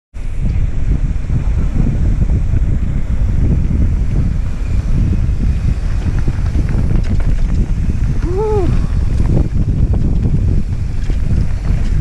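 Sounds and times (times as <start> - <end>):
wind buffeting microphone: 0.2 - 12.0
tyre ticks on path: 3.4 - 12.0.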